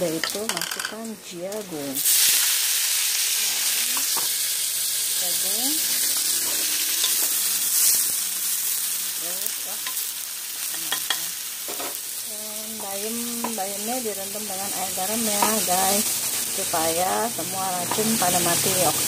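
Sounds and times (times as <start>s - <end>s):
food sizzling in hot oil: 0.0s - 19.0s.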